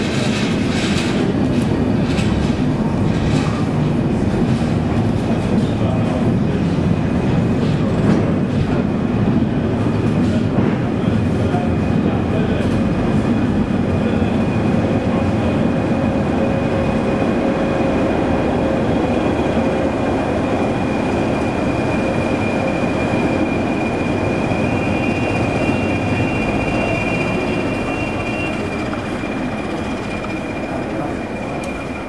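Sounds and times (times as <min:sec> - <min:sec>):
locomotive engine and wheel rumble: 0:00.0 - 0:32.0
high steady whine: 0:11.0 - 0:32.0.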